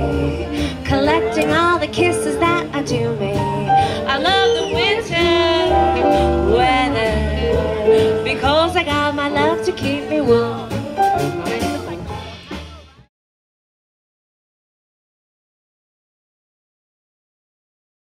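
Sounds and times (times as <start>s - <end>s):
saxophone: 0.0s - 12.0s
jazz band playing: 0.0s - 13.1s
upright bass notes: 0.0s - 13.1s.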